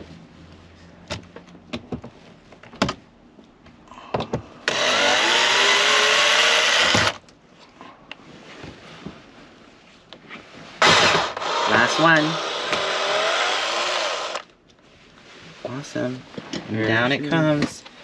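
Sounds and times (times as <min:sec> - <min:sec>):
cordless drill whining: 0:04.7 - 0:07.2, 0:10.8 - 0:14.5.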